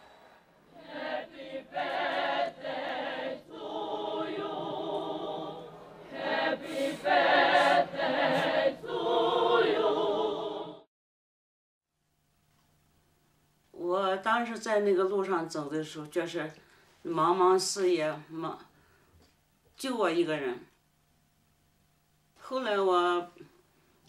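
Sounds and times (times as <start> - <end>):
crowd singing in chorus: 0.7 - 10.9.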